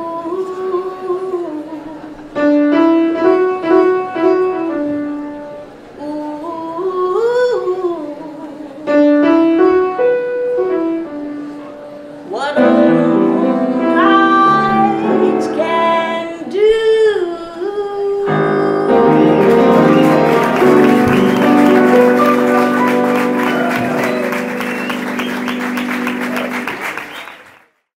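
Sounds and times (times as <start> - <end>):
woman singing jazz: 0.0 - 4.6, 6.0 - 10.1, 12.2 - 19.8
piano accompaniment: 2.3 - 6.0, 8.9 - 16.7, 18.2 - 27.4.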